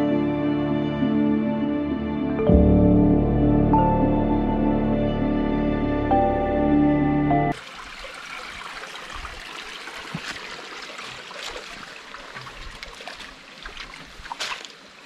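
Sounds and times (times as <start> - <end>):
stream trickling over stones: 7.5 - 15.0.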